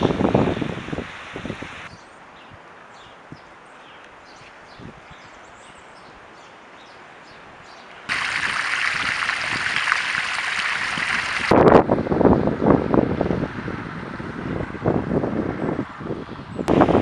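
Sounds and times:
water gushing from hose onto tarmac: 0:08.1 - 0:11.6.

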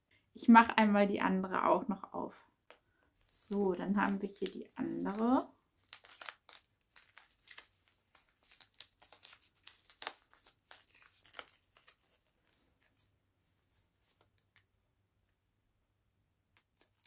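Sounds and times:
packaging sleeve crinkling: 0:03.3 - 0:14.7, 0:16.6 - 0:17.0.

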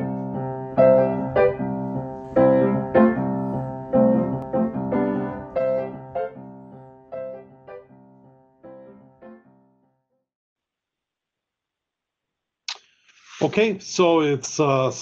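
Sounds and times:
solo piano music: 0:00.0 - 0:10.0.

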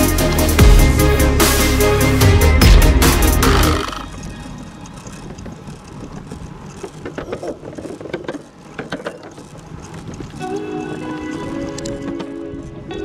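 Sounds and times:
bicycle tyres on wooden planks: 0:03.5 - 0:13.0.

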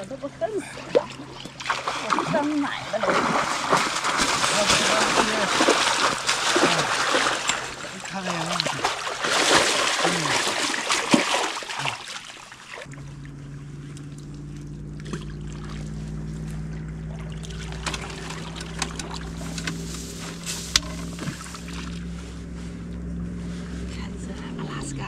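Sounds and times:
boat motor drone: 0:00.0 - 0:11.0, 0:11.8 - 0:25.0
fish splashing in a net: 0:01.2 - 0:12.9, 0:15.0 - 0:16.0, 0:17.1 - 0:19.4.

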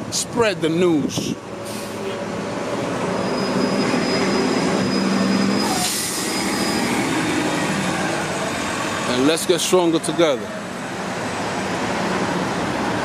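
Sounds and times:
bus engine idling: 0:04.6 - 0:13.0.

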